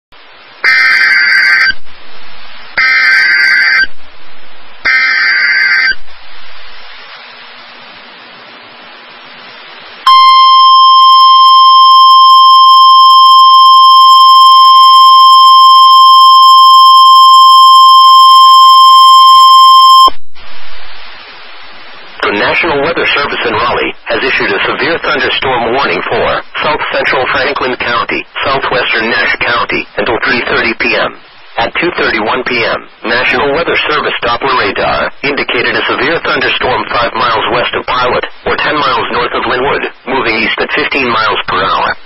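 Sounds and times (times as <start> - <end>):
radio hiss: 0.2 - 42.0
warning alarm tone: 10.1 - 20.4.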